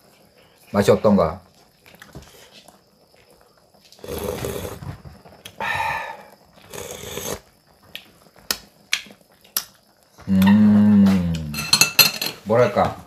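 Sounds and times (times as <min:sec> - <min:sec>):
slurping broth from spoon: 0:04.0 - 0:04.9, 0:06.6 - 0:07.5
person humming mmm: 0:10.2 - 0:11.7.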